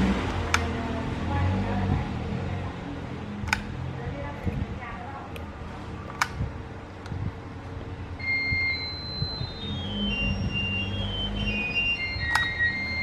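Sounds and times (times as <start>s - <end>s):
low hum: 6.3s - 13.0s
melody of high tones: 8.2s - 13.0s.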